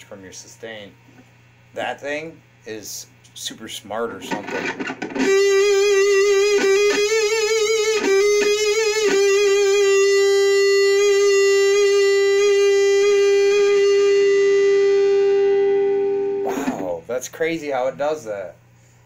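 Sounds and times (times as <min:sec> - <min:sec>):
distorted electric guitar note: 0:04.2 - 0:17.0.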